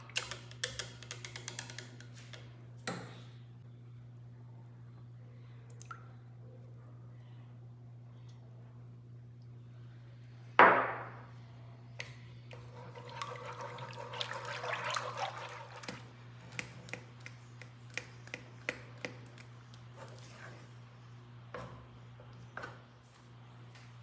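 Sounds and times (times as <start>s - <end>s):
steady low hum: 1.8s - 24.0s
whisk beating in pan: 12.5s - 17.0s.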